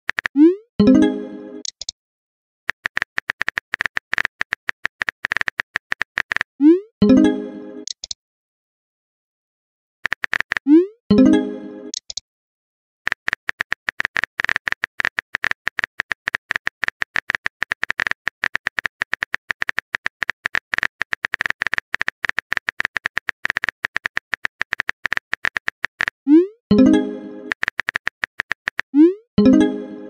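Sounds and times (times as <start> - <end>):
on-screen keyboard clicks: 0.1 - 0.6, 1.6 - 2.0, 2.7 - 6.5, 7.8 - 8.2, 10.0 - 11.3, 11.9 - 12.2, 13.1 - 26.2, 26.8 - 29.7.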